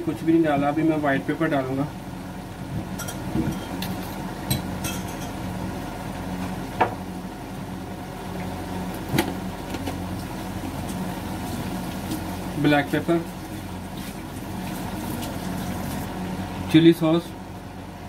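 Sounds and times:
low machine hum: 0.0 - 18.0
food frying in a pan: 8.3 - 16.2.

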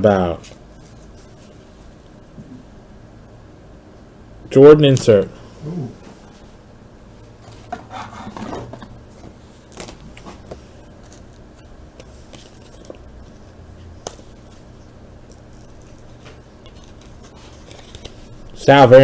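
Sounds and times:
plastic sleeve rustling and scraping: 12.0 - 13.4, 14.1 - 18.6.

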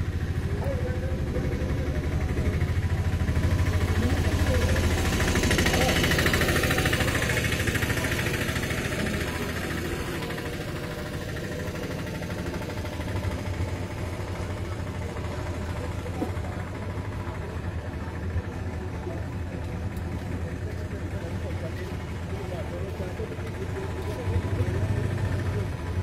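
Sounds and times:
road noise: 0.0 - 26.0
vehicle engines idling: 0.0 - 26.0.

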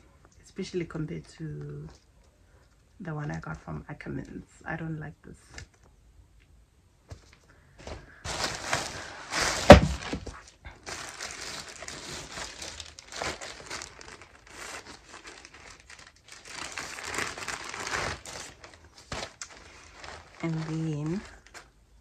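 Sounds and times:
packaging crinkling and rustling: 7.2 - 21.8.

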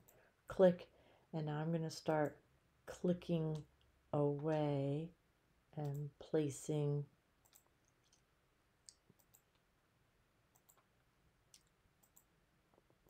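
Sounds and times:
computer mouse clicks: 5.8 - 6.0, 7.4 - 8.2, 8.9 - 9.6, 10.5 - 10.9, 11.6 - 12.3.

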